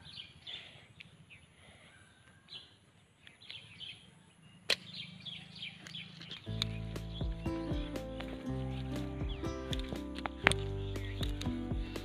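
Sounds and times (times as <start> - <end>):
birds chirping: 0.0 - 12.0
slingshot snap: 4.7 - 5.0.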